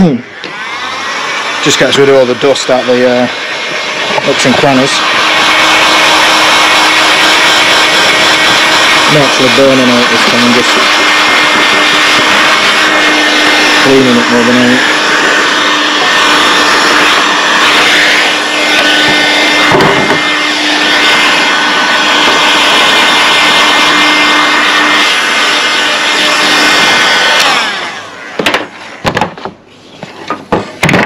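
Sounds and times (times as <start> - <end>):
heat gun fan blowing: 0.0 - 31.0
sharp knocks of tool set down: 28.4 - 29.6.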